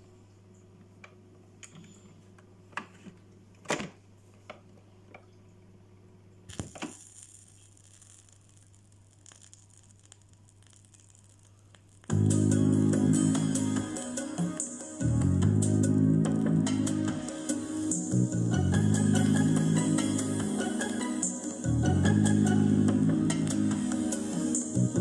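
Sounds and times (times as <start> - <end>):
record groove hiss: 6.1 - 25.0
music from record: 6.5 - 25.0.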